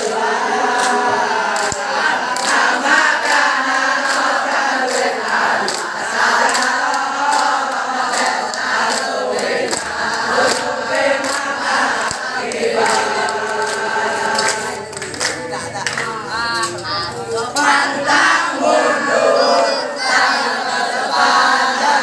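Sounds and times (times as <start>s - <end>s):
boys chanting in unison: 0.0s - 22.0s
hand clapping: 0.6s - 17.9s.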